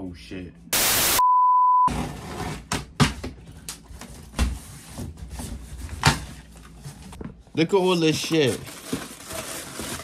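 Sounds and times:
cardboard rustling: 8.1s - 10.0s.

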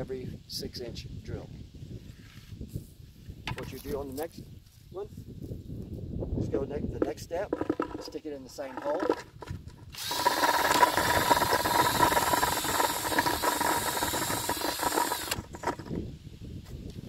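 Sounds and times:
drill motor whine: 9.9s - 15.8s.

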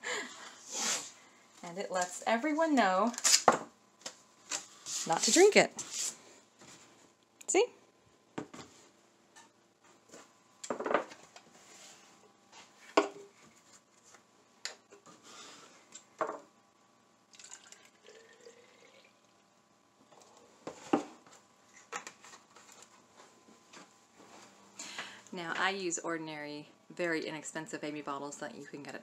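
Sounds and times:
liquid pouring into bottle: 17.3s - 19.4s.

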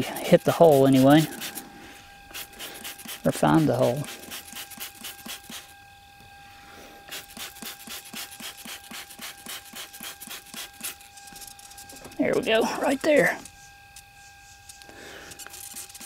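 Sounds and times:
spray bottle spraying: 0.5s - 1.6s, 2.3s - 5.7s, 7.1s - 12.1s, 14.6s - 16.0s.

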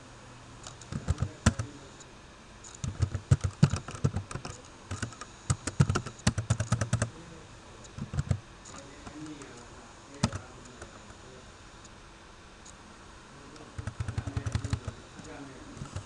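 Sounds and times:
computer keyboard typing: 0.8s - 1.8s, 2.7s - 7.2s, 8.0s - 8.4s, 10.2s - 10.9s, 13.7s - 16.0s.

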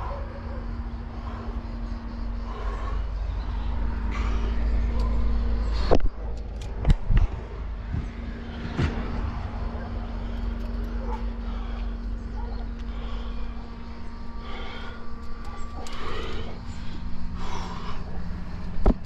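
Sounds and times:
steady low hum: 0.0s - 19.0s
camera handling rumble: 5.7s - 9.1s.

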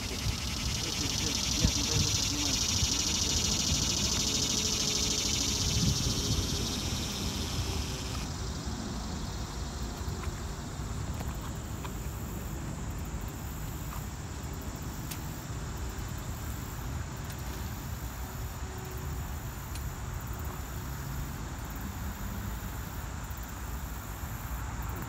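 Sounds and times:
wind rumbling on microphone: 0.0s - 8.2s
insect chirring: 0.0s - 8.6s
distant traffic hum: 0.0s - 18.2s.

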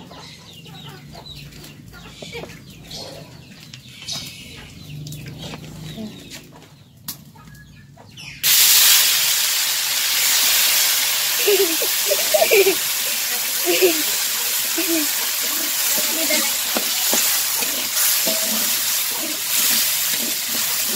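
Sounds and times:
faint chicken clucking: 0.0s - 8.4s
loud sizzle in wok: 8.4s - 20.9s.

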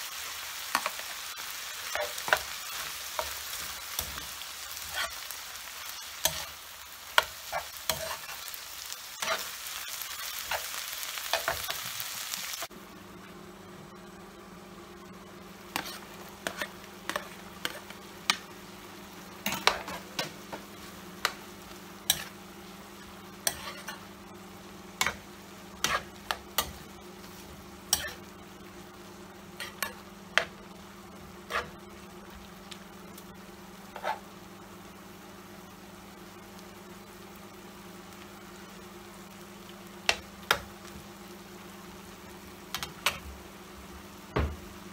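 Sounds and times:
food sizzling in frying pan: 0.0s - 12.9s, 14.2s - 44.9s
spatula scraping pan: 1.9s - 5.2s, 15.7s - 18.0s, 23.4s - 24.0s, 25.8s - 26.8s, 31.4s - 31.8s, 33.9s - 34.2s
steady low hum: 12.6s - 44.9s.

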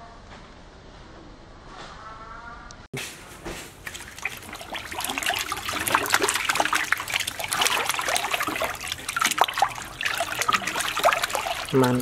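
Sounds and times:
water splashing in metal sink: 3.7s - 12.0s.

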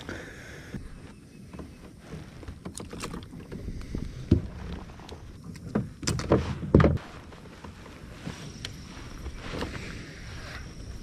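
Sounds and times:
knocks and thumps on kayak: 0.6s - 8.5s.

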